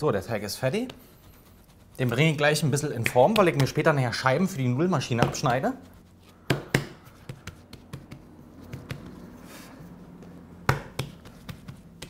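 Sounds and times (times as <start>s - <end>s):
hands slapping dough: 2.0s - 4.1s, 5.1s - 5.7s, 6.3s - 9.4s, 10.1s - 12.0s.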